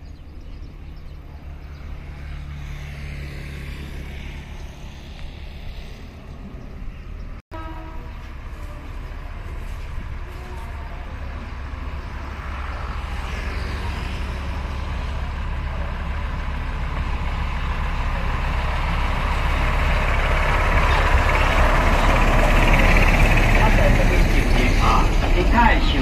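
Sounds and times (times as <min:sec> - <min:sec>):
diesel locomotive engine rumble: 0:00.0 - 0:26.0
train wheels on rails: 0:08.2 - 0:26.0.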